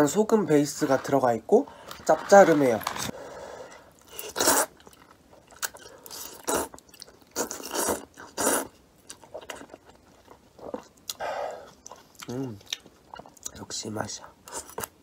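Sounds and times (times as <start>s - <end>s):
noodles being slurped: 0.6s - 3.1s
chewing: 4.0s - 13.6s.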